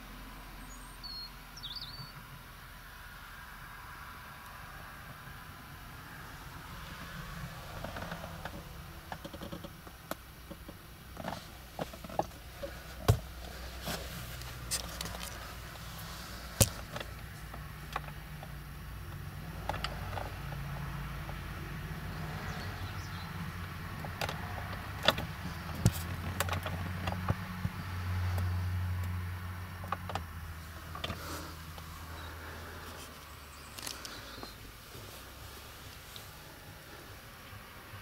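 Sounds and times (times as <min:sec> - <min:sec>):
diesel engine idling: 0:05.1 - 0:38.0
sharp clicks and knocks: 0:07.8 - 0:15.4, 0:16.6 - 0:21.4, 0:23.9 - 0:27.8.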